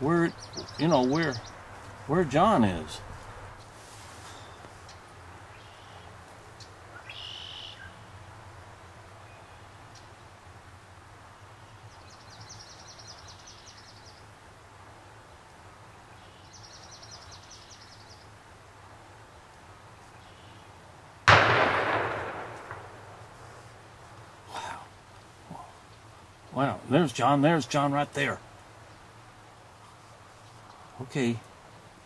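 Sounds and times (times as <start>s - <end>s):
bird trilling: 7.0s - 8.0s
shotgun blast: 21.3s - 23.2s.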